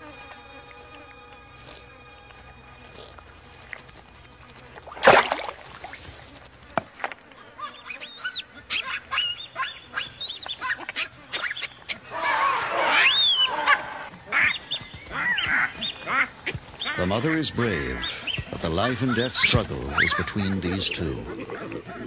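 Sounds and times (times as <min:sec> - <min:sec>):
baboons screaming: 0:07.4 - 0:22.0.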